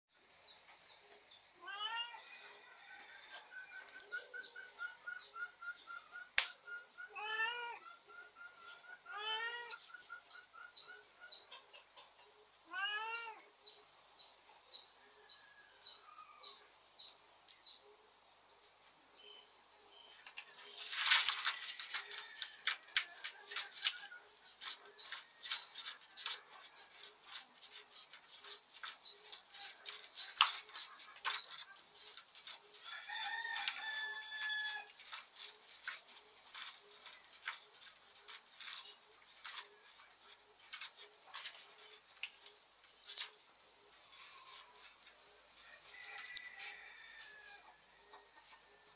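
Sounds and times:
cat meowing: 7.1 - 7.8, 12.7 - 13.4
small bird chirping: 23.2 - 33.0
rooster crowing: 32.9 - 34.9, 45.8 - 48.4.

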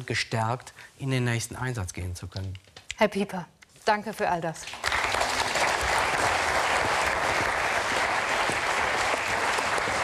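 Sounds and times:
audience applauding: 4.7 - 10.0.

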